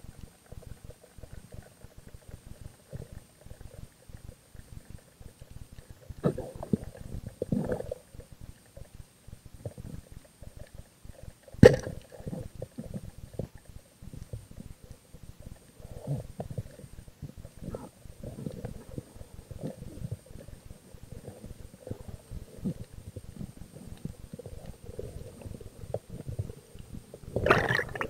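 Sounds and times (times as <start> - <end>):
low underwater rumbles: 9.3 - 28.0
underwater clicks: 27.3 - 28.0.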